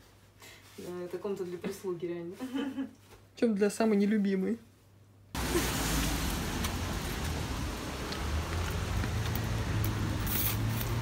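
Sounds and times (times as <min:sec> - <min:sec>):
rain hissing: 0:05.4 - 0:11.0
traffic: 0:05.4 - 0:11.0.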